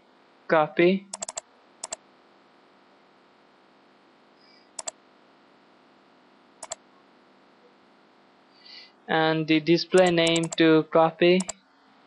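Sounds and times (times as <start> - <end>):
computer mouse clicking: 1.1 - 2.0, 4.8 - 5.0, 10.0 - 10.6, 11.4 - 11.6
faint steady hiss: 6.6 - 12.0.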